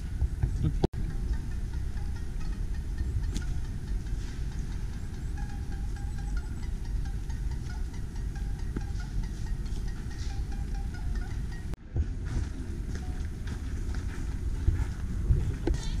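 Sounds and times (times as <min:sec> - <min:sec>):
wind buffeting microphone: 0:00.0 - 0:16.0
faint high chiming tones: 0:01.0 - 0:11.8.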